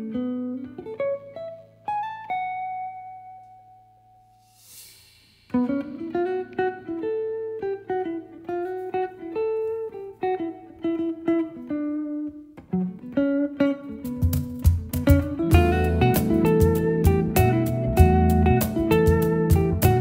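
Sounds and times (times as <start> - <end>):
guitar picking melody: 0.0 - 4.5, 5.4 - 20.0
percussion with cymbal hits: 4.4 - 6.7
low bass notes: 15.5 - 20.0.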